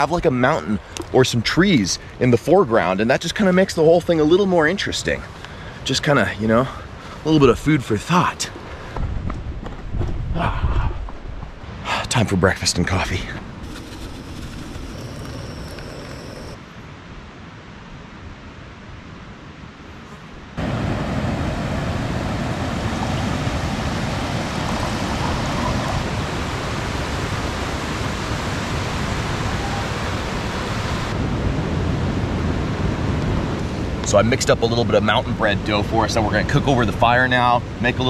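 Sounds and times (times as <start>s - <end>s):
river whitewater rushing: 20.6s - 33.0s.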